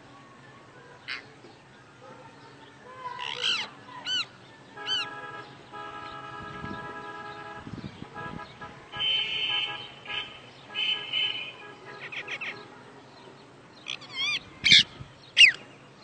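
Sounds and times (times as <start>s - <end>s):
parakeets calling: 2.1s - 15.9s
parakeet squawk: 3.1s - 4.3s, 12.0s - 12.6s, 13.9s - 15.6s.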